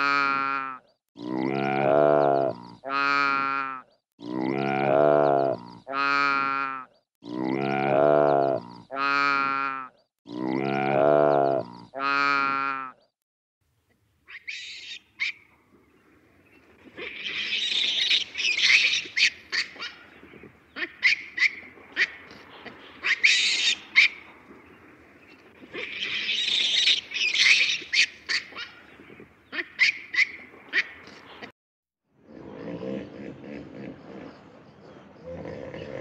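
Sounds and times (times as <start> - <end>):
baboons screeching: 14.3 - 15.4, 17.0 - 20.0, 20.8 - 22.4, 23.0 - 24.2, 25.7 - 28.8, 29.6 - 30.9
baboons yelping: 16.8 - 24.3, 25.6 - 28.9, 29.5 - 31.2.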